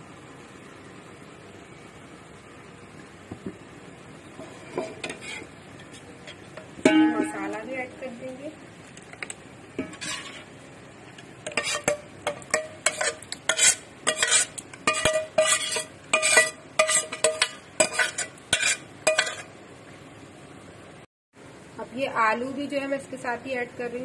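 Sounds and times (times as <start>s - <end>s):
steel spoon scraping metal pot: 9.8s - 10.5s, 11.5s - 19.5s.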